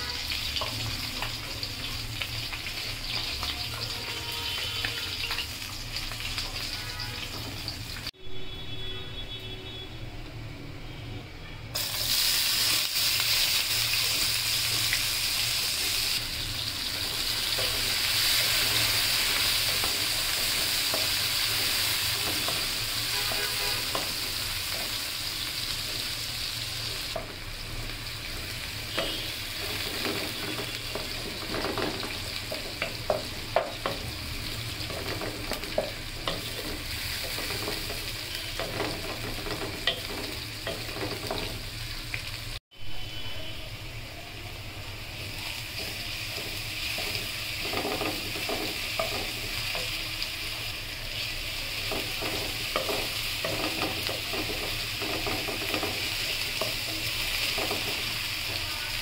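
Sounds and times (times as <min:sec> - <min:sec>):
onions sizzling in hot oil: 0:00.0 - 0:08.8, 0:11.7 - 0:59.0
wooden spatula tapping and scraping: 0:28.9 - 0:41.6, 0:45.8 - 0:50.0, 0:51.8 - 0:58.1.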